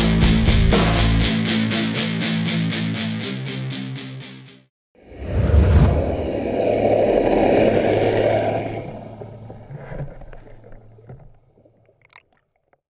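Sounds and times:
rushing underwater water: 5.1s - 12.8s
small bubbling pops: 10.2s - 12.8s.

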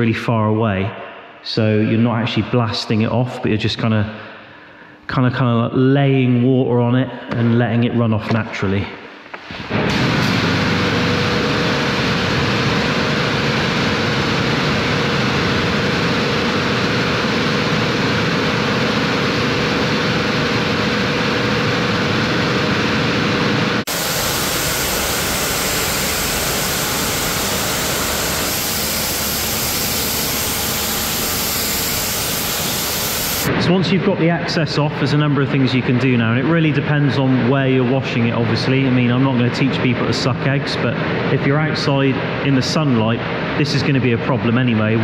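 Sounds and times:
steady hum: 9.0s - 36.0s
pressure washer spraying water: 23.9s - 33.5s.

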